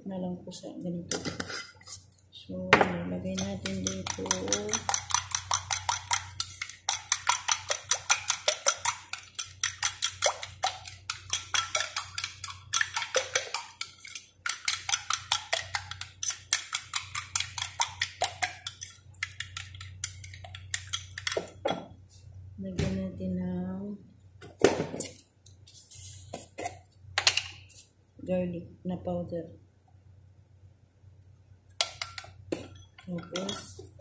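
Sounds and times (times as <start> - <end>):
spoon beating batter in bowl: 3.2 - 22.0, 31.7 - 34.0.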